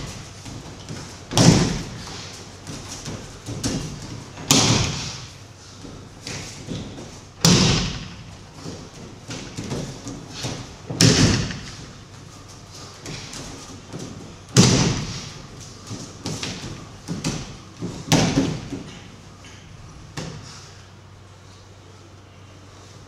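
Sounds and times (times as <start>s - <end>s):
heavy thuds on mats: 0.0s - 12.1s, 12.7s - 19.1s
feet shuffling on mats: 0.0s - 19.1s.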